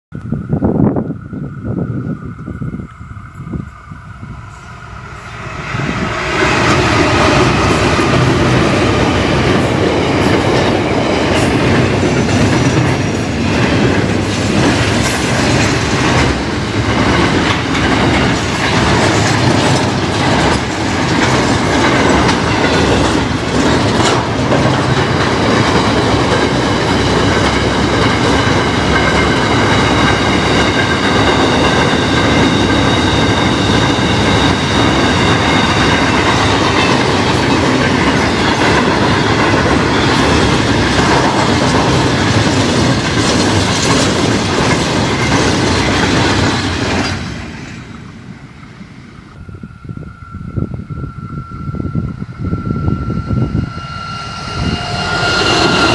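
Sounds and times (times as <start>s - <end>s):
wheels squealing: 1.9s - 47.8s, 49.4s - 55.9s
train wheels clattering on rails: 5.3s - 49.4s.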